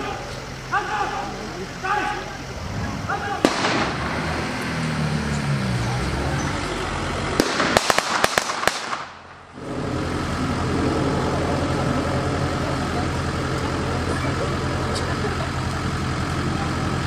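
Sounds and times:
jeep engine idling: 0:00.0 - 0:07.8, 0:09.2 - 0:17.0
engine drone: 0:00.0 - 0:17.0
blank gunshots: 0:03.4 - 0:04.4, 0:07.4 - 0:09.4.

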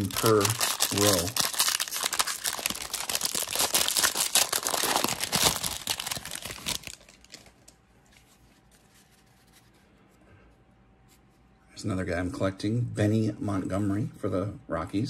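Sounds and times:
foil wrapper crinkling: 0:00.0 - 0:07.8.

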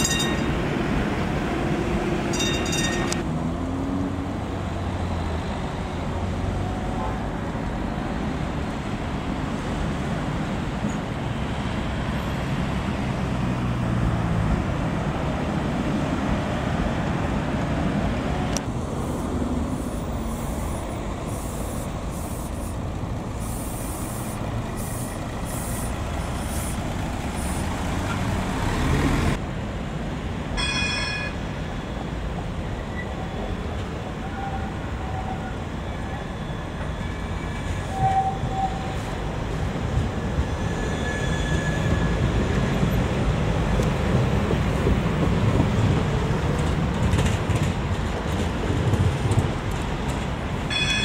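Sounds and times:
tram motors and wheels rumbling: 0:00.0 - 0:51.0
high hissing: 0:19.8 - 0:27.7
short ringing tone: 0:30.6 - 0:31.4, 0:50.7 - 0:51.0.

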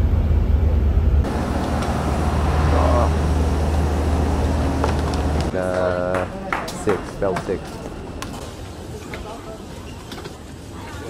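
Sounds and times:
vehicle engine rumble: 0:00.0 - 0:09.0
idling buses and traffic: 0:00.0 - 0:10.9
people's voices: 0:01.3 - 0:09.9.

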